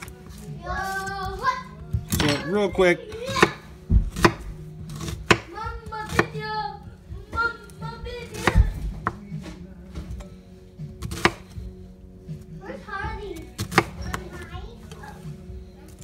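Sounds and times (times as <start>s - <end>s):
background music: 0.0s - 16.0s
knife chopping on cutting board: 3.1s - 6.5s, 8.2s - 9.5s, 11.0s - 11.6s, 13.6s - 14.2s.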